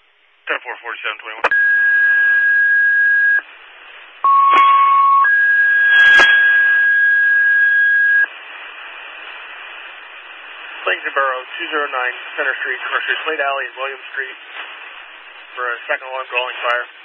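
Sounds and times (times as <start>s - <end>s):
radio hiss: 0.4s - 1.7s, 3.4s - 4.7s, 5.9s - 6.7s, 8.0s - 17.0s
paging tones over radio: 1.4s - 3.4s, 4.3s - 8.3s.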